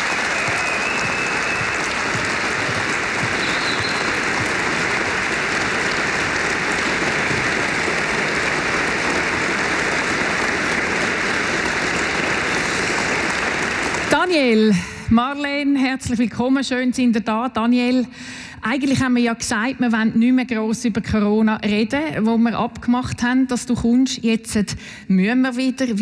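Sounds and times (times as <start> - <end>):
audience applauding: 0.0 - 14.6.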